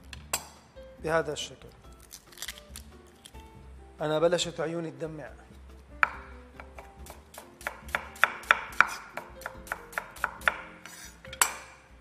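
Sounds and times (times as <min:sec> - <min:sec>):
knife tapping on wooden board: 0:06.0 - 0:10.7.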